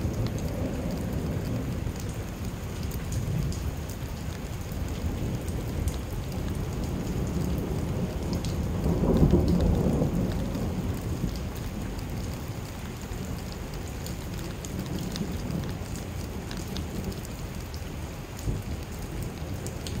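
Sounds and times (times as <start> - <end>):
steady rain: 0.0 - 20.0
thunder rumbling: 5.0 - 12.2.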